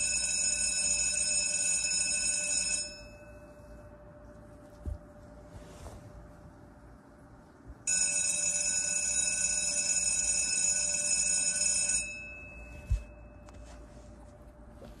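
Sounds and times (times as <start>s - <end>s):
electric school bell ringing: 0.0s - 4.0s, 7.9s - 13.8s.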